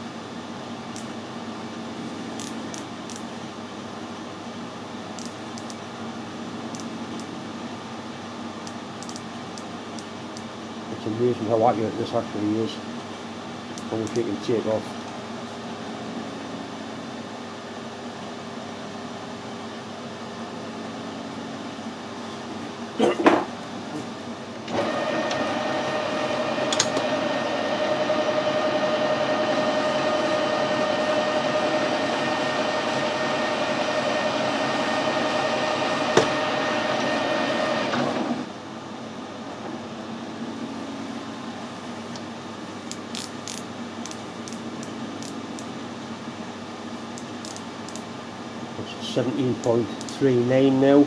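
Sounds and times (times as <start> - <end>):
light micrometer clicks: 5.2 - 5.8, 8.6 - 10.5, 13.8 - 14.3.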